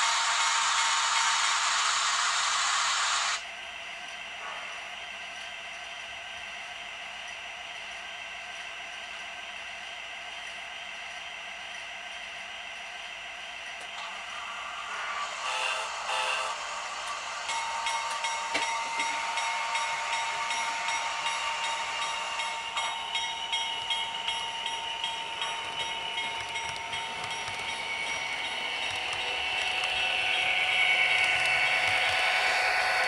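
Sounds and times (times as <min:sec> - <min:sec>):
high locomotive whine: 0:00.0 - 0:33.0
model train wheels ticking: 0:15.4 - 0:33.0.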